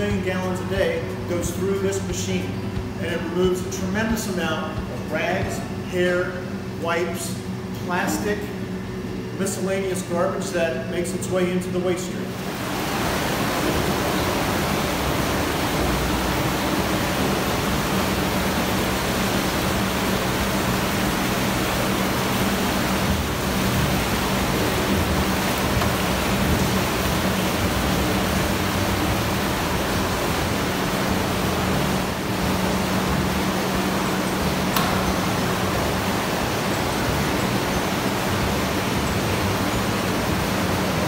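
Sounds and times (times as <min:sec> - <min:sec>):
water rushing through channel: 0:12.3 - 0:41.0.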